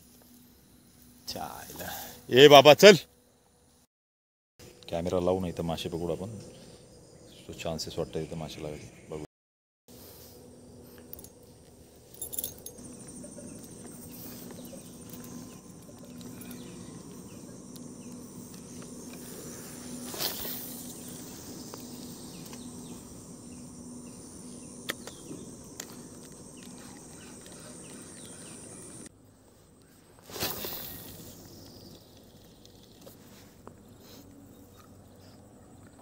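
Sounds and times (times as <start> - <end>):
insects droning: 0.0 - 3.9, 4.6 - 9.3, 9.9 - 36.0
rustling in undergrowth: 12.8 - 23.1, 29.4 - 34.9.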